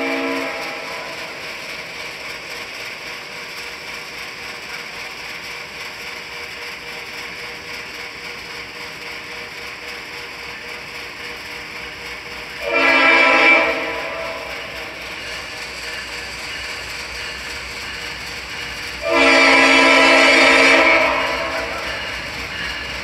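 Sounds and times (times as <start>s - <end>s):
locomotive air horn: 0.0s - 1.2s, 12.6s - 14.9s, 19.0s - 22.0s.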